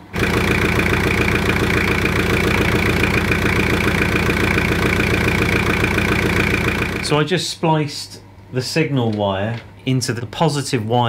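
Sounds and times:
diesel engine idling: 0:00.0 - 0:07.2.

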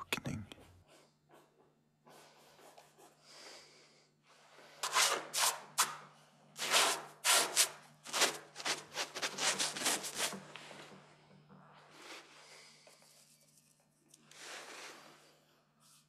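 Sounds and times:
paintbrush scrubbing on canvas: 0:06.6 - 0:10.5, 0:11.9 - 0:16.0.

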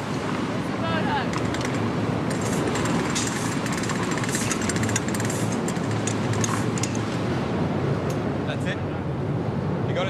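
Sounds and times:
ship engine humming: 0:00.0 - 0:10.0
quick rattling ticks: 0:01.3 - 0:07.0.

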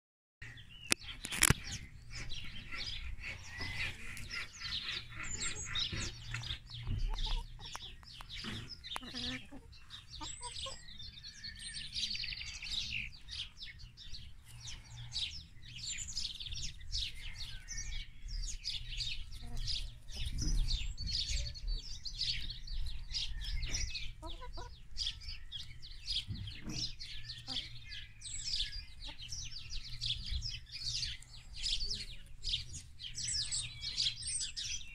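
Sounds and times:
small birds chirping: 0:00.4 - 0:34.9
hens clucking: 0:01.0 - 0:13.5, 0:18.7 - 0:33.3.

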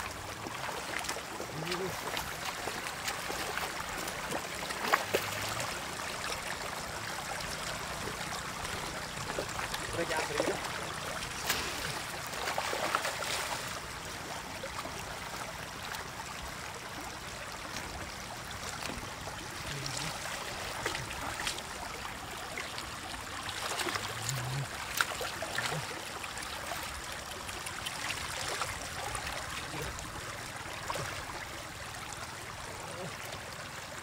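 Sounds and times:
shallow water splashing: 0:00.0 - 0:33.2
water pouring from basket: 0:07.4 - 0:13.8.

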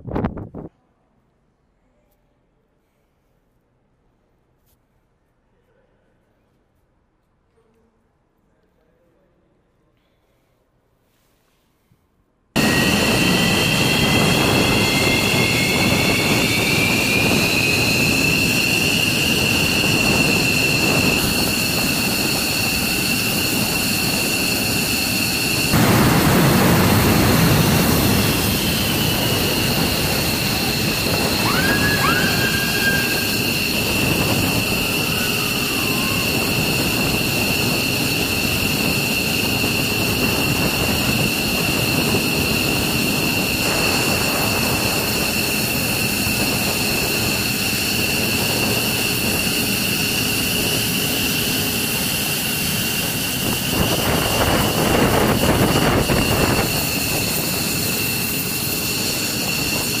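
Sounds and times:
jet engines running: 0:12.6 - 1:00.0
rising whistle: 0:12.6 - 1:00.0.

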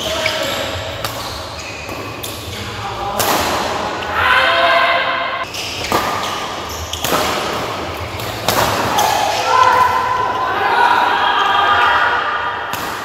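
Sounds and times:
sneakers squealing on court floor: 0:00.0 - 0:02.9, 0:05.4 - 0:10.5.

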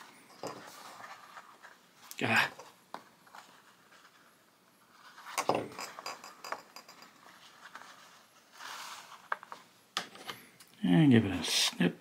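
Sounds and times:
faint handling sounds: 0:00.0 - 0:10.8.

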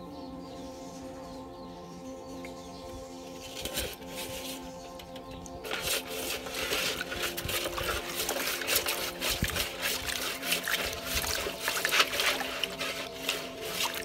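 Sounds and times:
fish splashing in water: 0:05.7 - 0:14.0.

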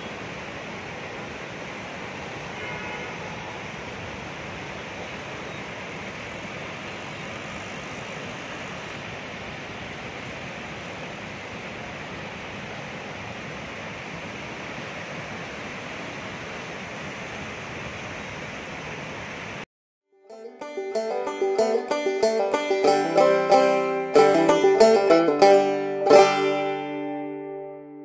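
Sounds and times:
river torrent rushing: 0:00.0 - 0:19.6, 0:20.4 - 0:28.0.

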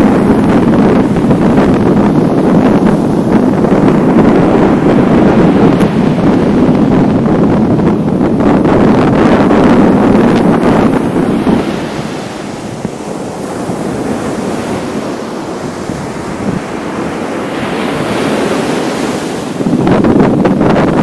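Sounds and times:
wind buffeting microphone: 0:00.0 - 0:21.0
small waves breaking on sand: 0:09.3 - 0:20.0.

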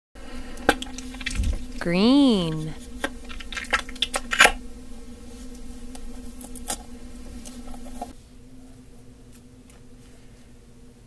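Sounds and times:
faint steady hum: 0:00.2 - 0:11.0.

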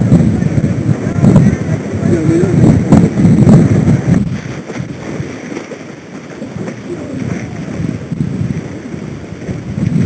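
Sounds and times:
wind rumbling on microphone: 0:00.0 - 0:10.0.

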